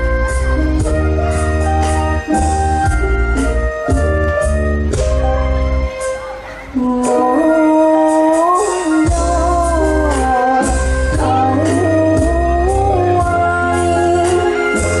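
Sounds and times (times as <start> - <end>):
amplified backing music: 0.0 - 15.0
girl singing into a microphone: 5.9 - 15.0.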